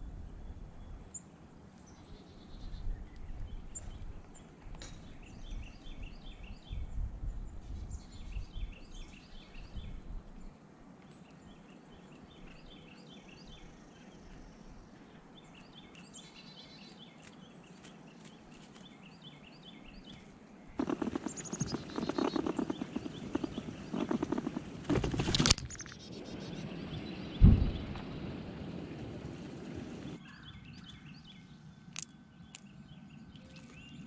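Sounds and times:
bird chirps: 11.5s - 34.0s
squirrel chewing and scrabbling: 20.8s - 26.0s
loud low thump: 27.4s - 28.2s.

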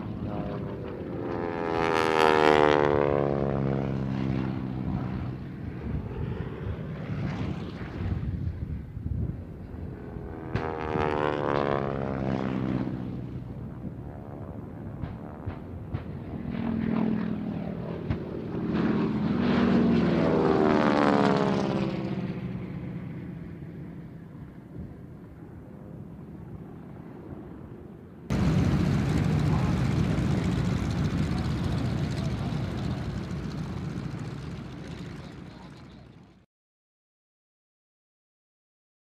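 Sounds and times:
propeller plane passing: 0.0s - 36.5s
radial engine taxiing: 28.3s - 36.1s.

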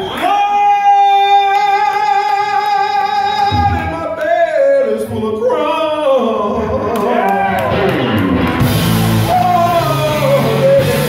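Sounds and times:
live blues band playing: 6.8s - 11.0s.

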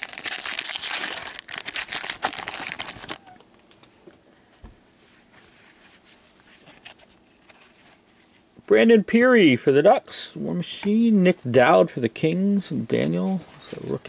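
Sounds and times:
wrapper crinkling and tearing: 0.0s - 3.4s.

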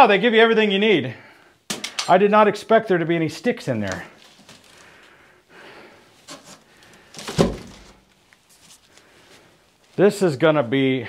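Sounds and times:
cardboard rustling: 3.8s - 5.0s, 6.2s - 9.1s
loud thump of box: 7.2s - 7.8s.

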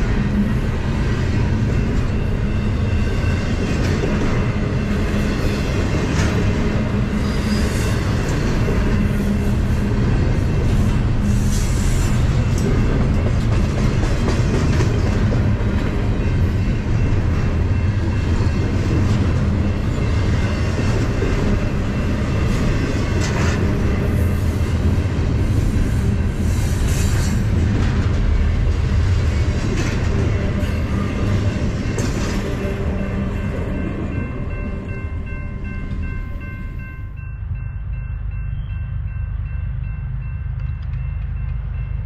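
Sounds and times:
freight train wheels clacking: 0.0s - 36.9s.

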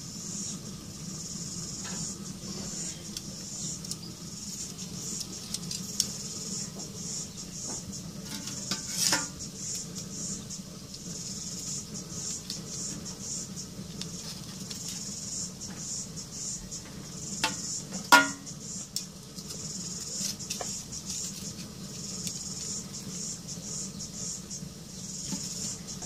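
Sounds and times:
metal clatter: 8.2s - 9.4s.

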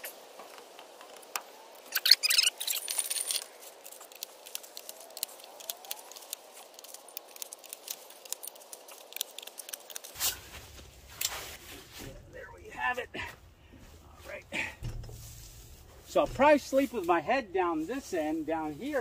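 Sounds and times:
metal parts clinking and rattling: 1.9s - 10.1s.

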